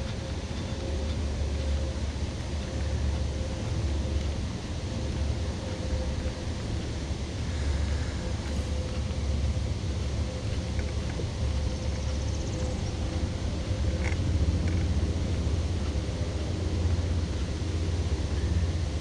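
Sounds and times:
faint ticks: 0:00.0 - 0:04.5
faint steady hum: 0:00.0 - 0:19.0.

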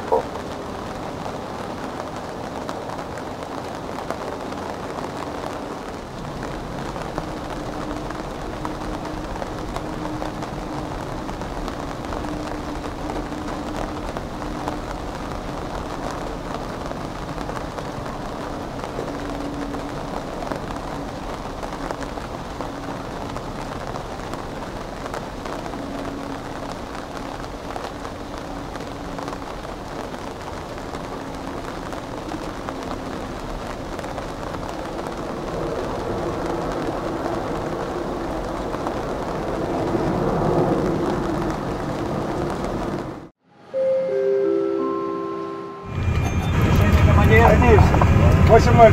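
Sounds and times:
jet engines at takeoff power: 0:45.9 - 0:48.9.

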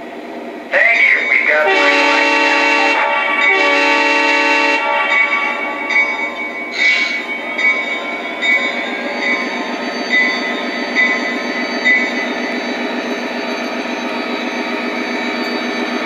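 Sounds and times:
locomotive bell ringing: 0:00.8 - 0:16.0.

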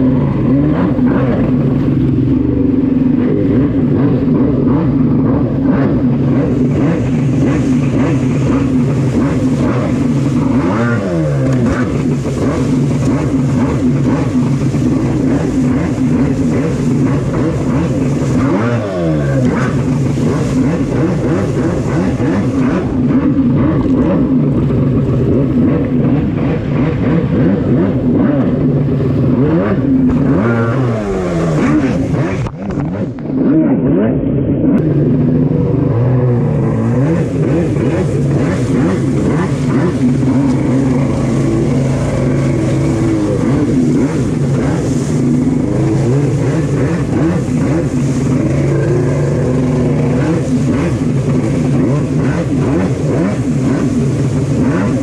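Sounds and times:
jet ski engine running hard: 0:00.0 - 0:55.0
wind: 0:00.0 - 0:55.0
water spray: 0:06.2 - 0:24.5, 0:35.9 - 0:55.0.

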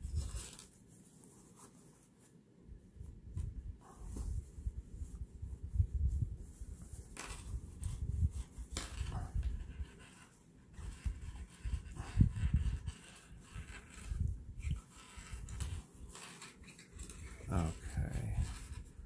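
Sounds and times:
fabric rustling: 0:00.0 - 0:11.0.

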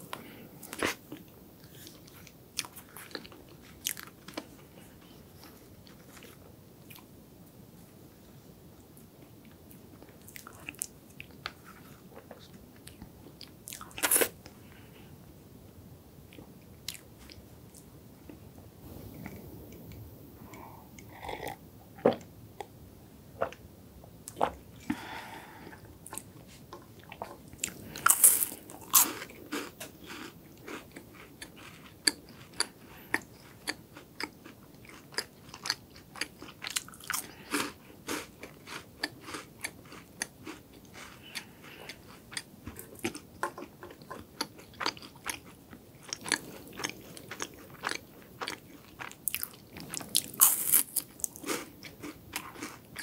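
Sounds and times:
crisp chewing of wafer snack: 0:27.0 - 0:53.0.

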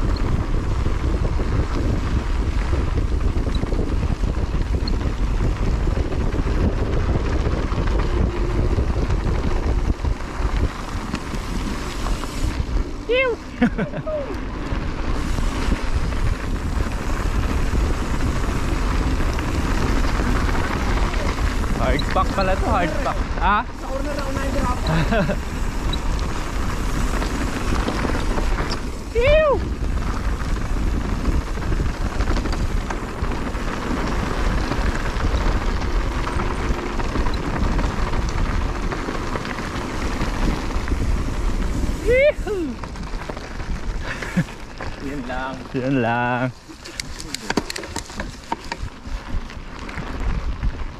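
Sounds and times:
bike tyres rolling on dirt: 0:00.0 - 0:50.9
wind buffeting microphone: 0:00.0 - 0:50.9
tyre crackle on dirt: 0:42.6 - 0:50.9.

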